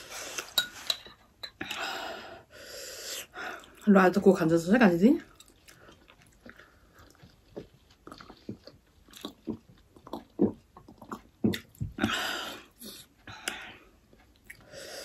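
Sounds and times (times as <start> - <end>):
wet chewing and lip smacks: 5.3 - 11.8.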